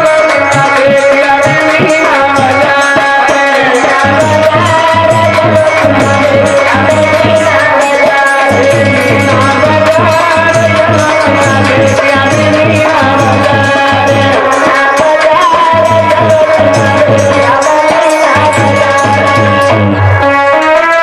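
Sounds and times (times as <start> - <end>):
hand drums fast rhythm: 0.0 - 20.2
folk dance music: 0.0 - 21.0.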